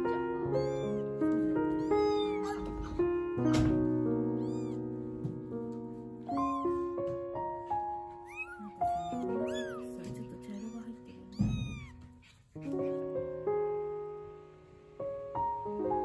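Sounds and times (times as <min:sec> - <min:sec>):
kittens mewing: 0:00.4 - 0:04.9, 0:06.3 - 0:06.8, 0:08.1 - 0:13.2.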